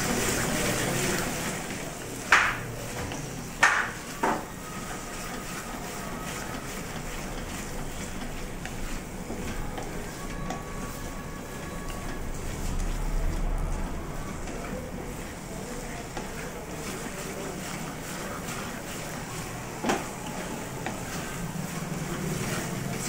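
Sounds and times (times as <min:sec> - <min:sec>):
spatula scraping metal pan: 0:14.3 - 0:23.0.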